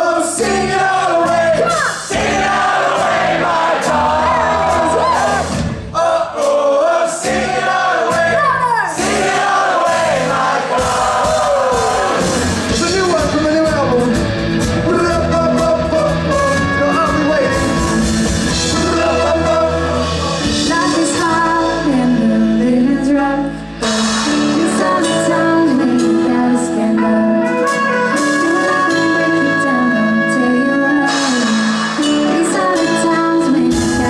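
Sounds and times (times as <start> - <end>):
drums: 0.0 - 34.0
person singing: 14.8 - 34.0.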